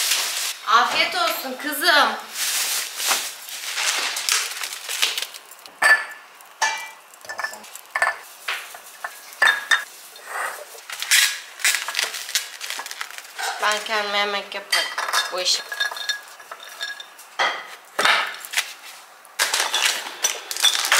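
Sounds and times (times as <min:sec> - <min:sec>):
plastic bag rustling: 0:00.0 - 0:05.7, 0:07.4 - 0:14.4, 0:18.4 - 0:20.9
glass jars clinking: 0:05.8 - 0:08.2, 0:09.4 - 0:09.9, 0:14.7 - 0:18.3, 0:19.5 - 0:20.9.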